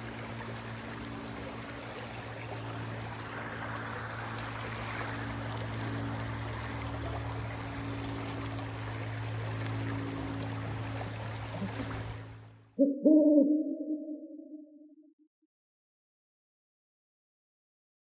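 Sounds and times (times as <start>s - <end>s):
stream water rushing over rocks: 0.0s - 12.4s
low drone of held tones: 0.0s - 14.9s.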